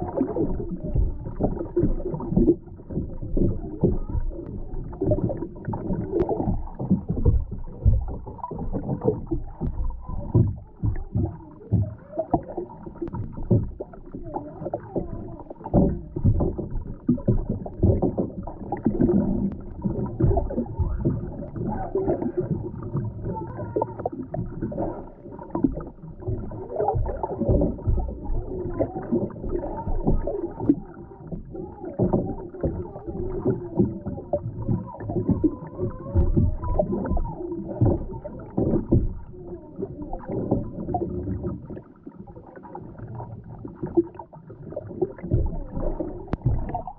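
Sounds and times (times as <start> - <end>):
low underwater knocks: 0.0 - 41.9, 42.9 - 46.9
water sloshing: 0.0 - 46.9.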